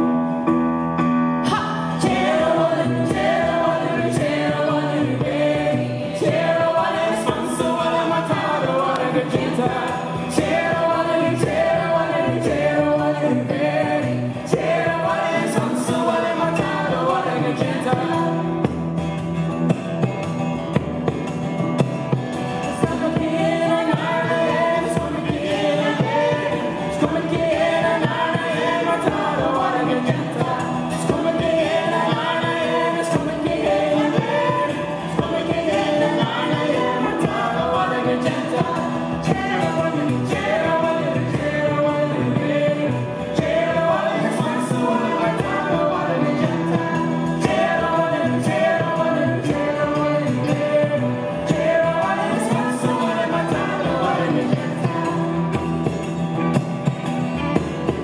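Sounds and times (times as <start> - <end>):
acoustic guitars: 0.0 - 58.0
keyboard: 0.0 - 58.0
group singing together: 1.4 - 58.0
frame drum: 1.5 - 58.0.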